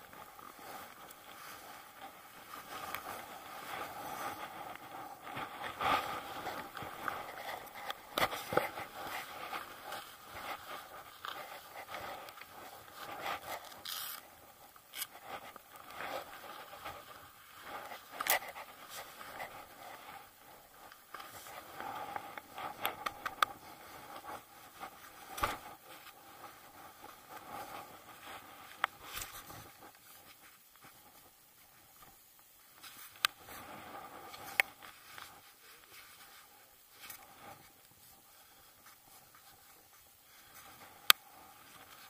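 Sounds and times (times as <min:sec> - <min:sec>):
boots crunching in snow: 0:00.0 - 0:19.8
jacket fabric rustling: 0:00.0 - 0:42.0
ski poles scraping and clicking: 0:00.0 - 0:42.0.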